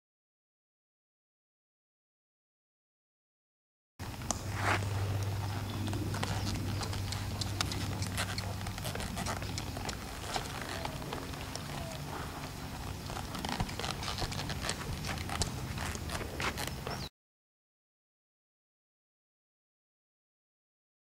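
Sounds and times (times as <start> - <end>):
hoofbeats on sand: 4.0 - 17.1
low steady hum: 4.0 - 17.1.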